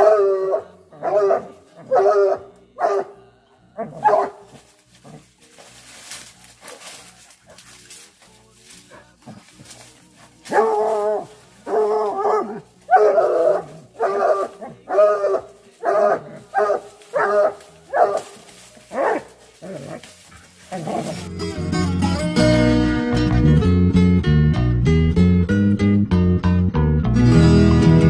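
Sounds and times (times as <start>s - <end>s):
hounds baying: 0.0s - 21.3s.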